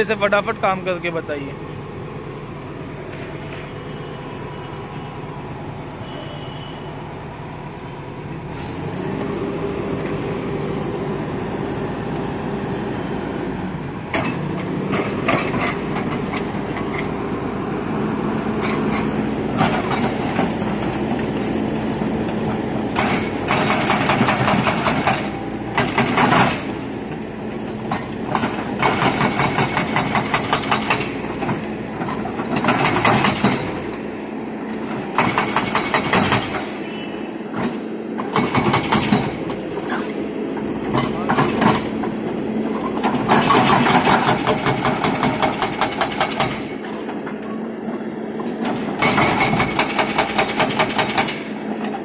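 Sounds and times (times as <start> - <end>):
excavator diesel engine revving: 6.9 - 52.0
hydraulic breaker hammer pounding: 22.9 - 26.8, 27.9 - 34.0, 34.9 - 36.9, 37.6 - 39.6, 43.0 - 47.0, 48.6 - 51.9.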